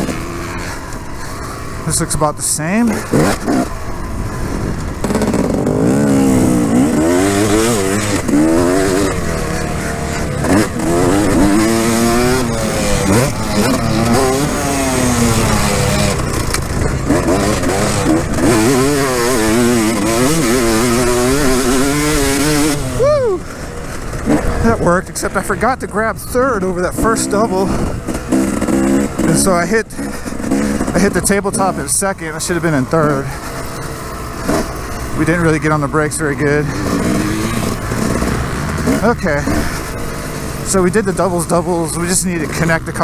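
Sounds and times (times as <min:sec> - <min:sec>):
motorbike engine revving: 0:00.0 - 0:43.0
wind rushing over microphone: 0:01.0 - 0:23.0, 0:23.7 - 0:29.3.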